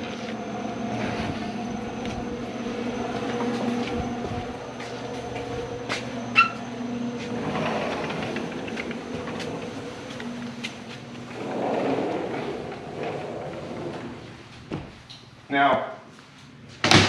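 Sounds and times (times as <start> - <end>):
steady mechanical hum: 0.0 - 17.0
footsteps on hard floor: 3.1 - 6.5, 14.0 - 15.1.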